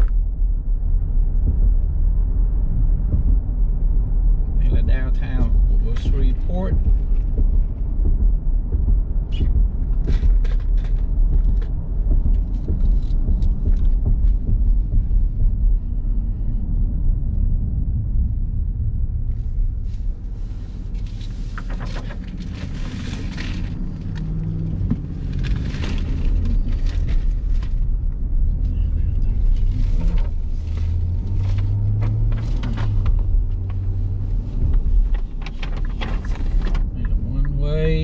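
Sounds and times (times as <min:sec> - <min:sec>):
car engine and road rumble: 0:00.0 - 0:38.0.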